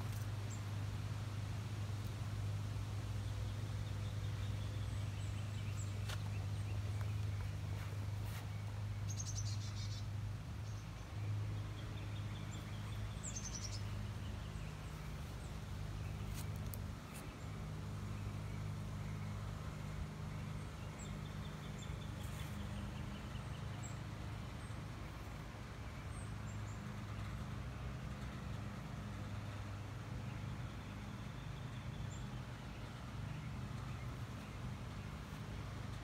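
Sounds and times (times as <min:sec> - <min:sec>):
low mechanical hum: 0:00.0 - 0:36.0
birds chirping and trilling: 0:03.4 - 0:19.4.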